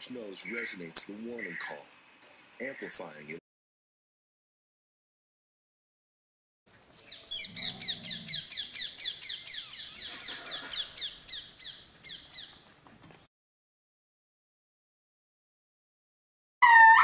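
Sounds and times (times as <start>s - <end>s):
high falling animal chirps: 0.3s - 3.2s, 16.6s - 17.0s
low animal call: 7.1s - 11.4s, 16.6s - 17.0s.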